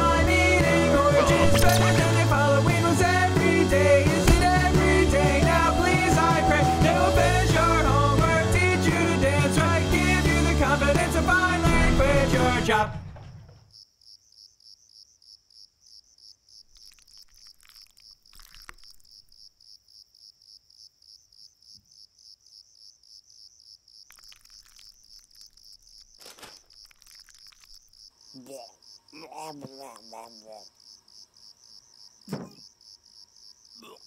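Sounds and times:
rock song: 0:00.0 - 0:13.3
crickets chirping: 0:13.4 - 0:34.0
short vocal sound: 0:33.8 - 0:34.0.

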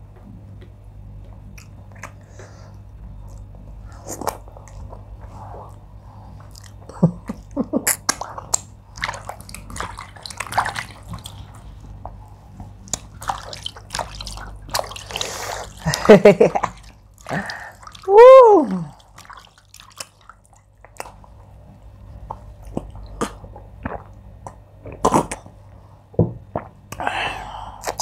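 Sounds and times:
lips smacking: 0:01.5 - 0:02.3.

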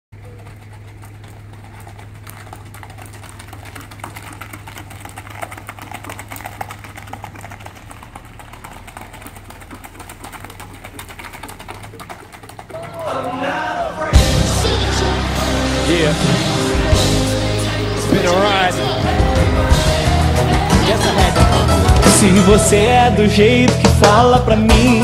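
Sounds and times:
horse hoofbeats on dirt: 0:00.1 - 0:13.2
steady low hum: 0:00.2 - 0:23.2.

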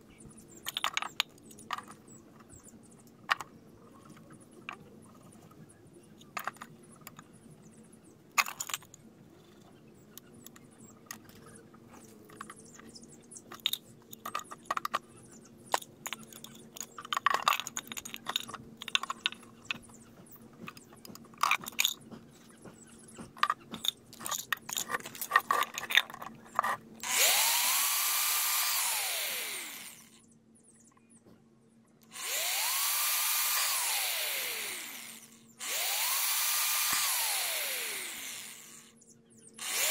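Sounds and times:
hands handling metal plates: 0:23.2 - 0:26.9
electric drill whining: 0:27.0 - 0:30.2, 0:32.1 - 0:38.9, 0:39.6 - 0:39.9.

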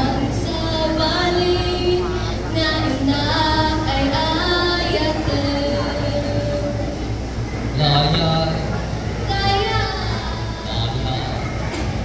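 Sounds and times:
high voice singing with vibrato: 0:00.0 - 0:07.2, 0:09.1 - 0:11.4.

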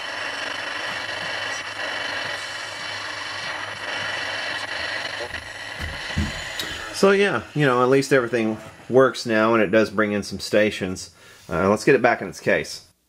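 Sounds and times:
low buzz: 0:00.0 - 0:09.6
radio static hiss: 0:00.0 - 0:12.8.

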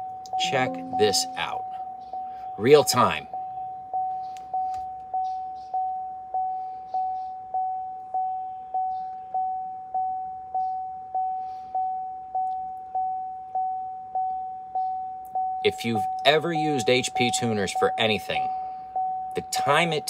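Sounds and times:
vehicle warning chime dinging: 0:00.0 - 0:04.0.

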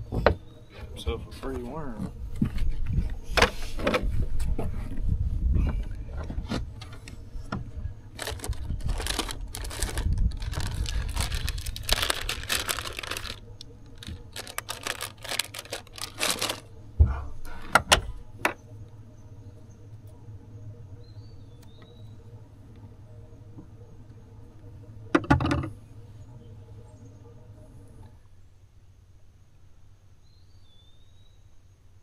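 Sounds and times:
plastic pack crinkling: 0:08.2 - 0:16.7.

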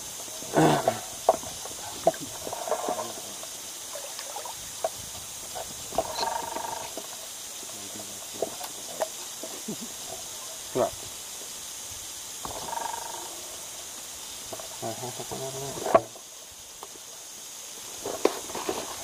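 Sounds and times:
splashes: 0:00.4 - 0:06.8
small waves lapping: 0:00.4 - 0:07.3.

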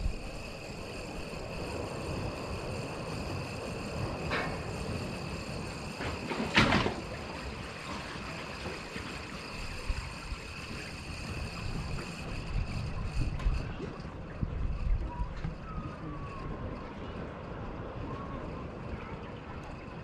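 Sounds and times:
sea water rumbling: 0:00.0 - 0:14.7
faint high whine: 0:00.0 - 0:20.0
wind: 0:00.0 - 0:20.0.

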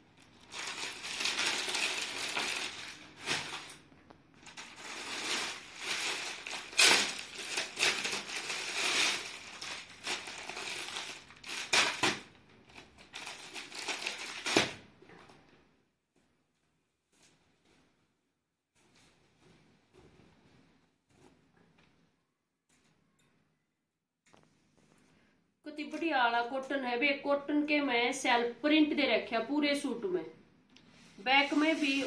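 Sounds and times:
wrapping crinkling and rustling: 0:00.1 - 0:15.0, 0:31.2 - 0:32.0.

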